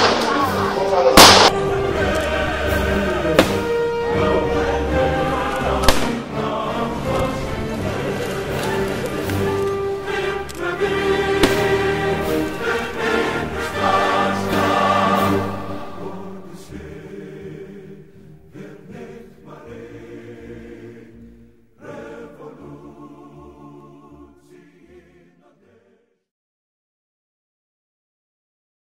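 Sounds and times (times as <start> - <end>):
choir singing: 0.0 - 26.3.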